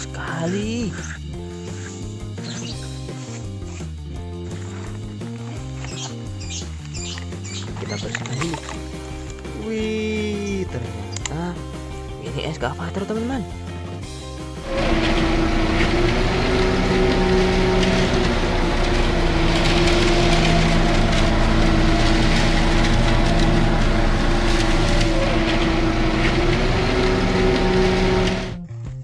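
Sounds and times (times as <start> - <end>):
excavator engine and hydraulics drone: 0.0 - 12.1, 13.6 - 28.7
rock and dirt clattering in bucket: 14.7 - 28.3.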